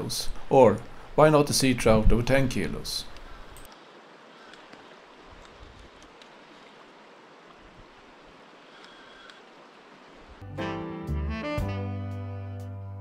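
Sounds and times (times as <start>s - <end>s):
river running over stones: 3.7s - 10.4s.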